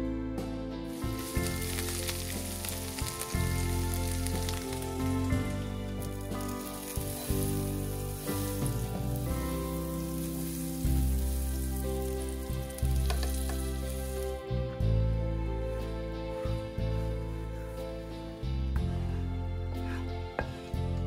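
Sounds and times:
background music: 0:00.0 - 0:21.0
food sizzling in a pan: 0:00.9 - 0:14.5.

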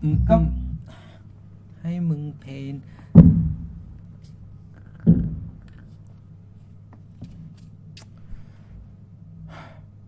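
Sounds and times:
low steady hum: 0:00.0 - 0:10.0
dull thump: 0:03.2 - 0:04.0, 0:05.1 - 0:05.7.

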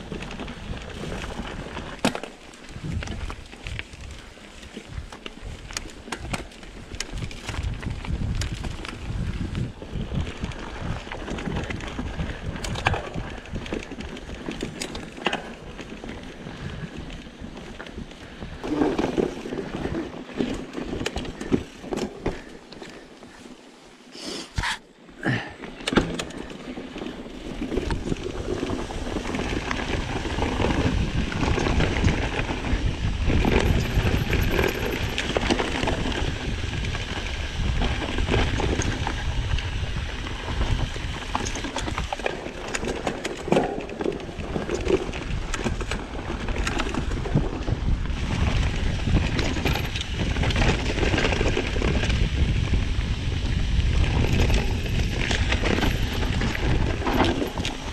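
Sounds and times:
bike rattling clicks: 0:00.0 - 0:23.5, 0:25.6 - 0:57.9
bike tyre rumble: 0:00.0 - 0:57.9
wind on microphone: 0:02.7 - 0:04.3, 0:04.9 - 0:14.8, 0:27.4 - 0:57.9.

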